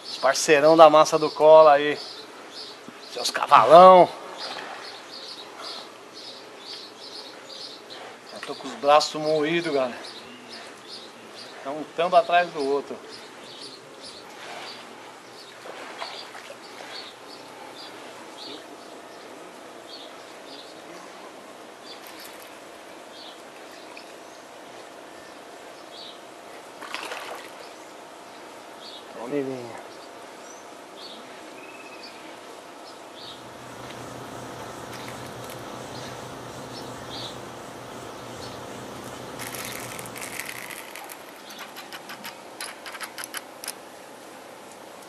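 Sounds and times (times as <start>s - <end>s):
outdoor background noise: 0.0s - 45.0s
fish splashing at surface: 26.8s - 27.6s
high bird chirps: 33.2s - 40.4s.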